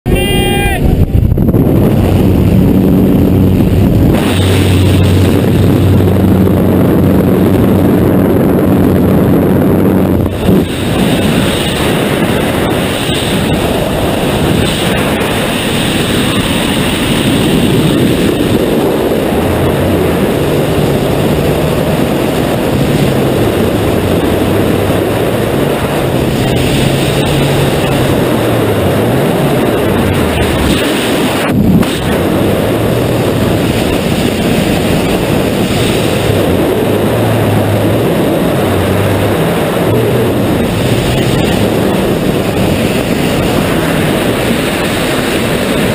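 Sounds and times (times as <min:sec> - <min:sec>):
wind rushing over microphone: 0:00.0 - 0:45.9.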